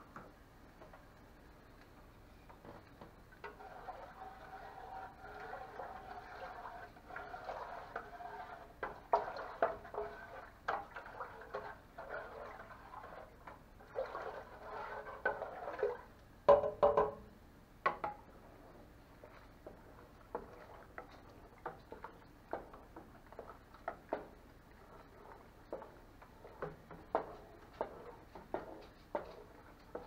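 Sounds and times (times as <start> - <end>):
spoon stirring liquid: 3.4 - 16.1, 18.6 - 30.0
spoon knocking against pot: 16.5 - 17.2.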